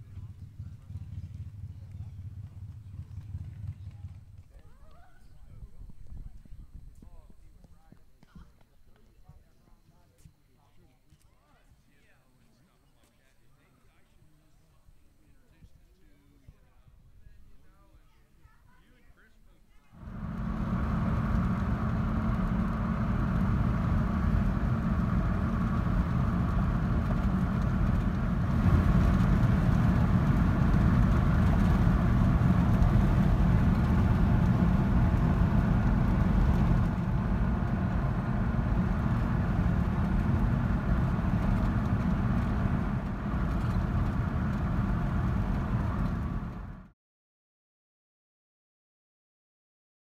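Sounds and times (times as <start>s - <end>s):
car interior road rumble: 20.0s - 46.9s.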